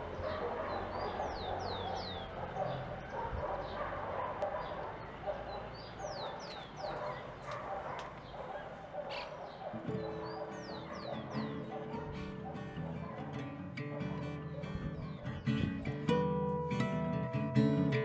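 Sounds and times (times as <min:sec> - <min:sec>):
bird chirping: 0:00.0 - 0:15.9
distant dogs barking: 0:00.0 - 0:16.8.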